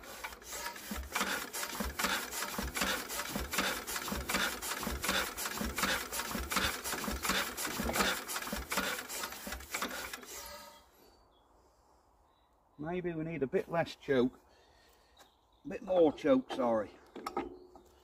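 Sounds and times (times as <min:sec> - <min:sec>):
engine turned over by hand crank: 0:00.0 - 0:10.6.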